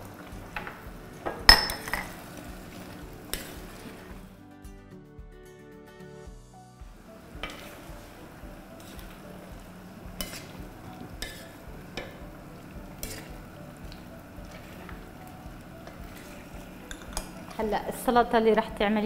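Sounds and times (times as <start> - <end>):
vegetables sizzling in a wok: 0.0 - 4.3, 6.9 - 19.0
spoon stirring: 7.3 - 17.7.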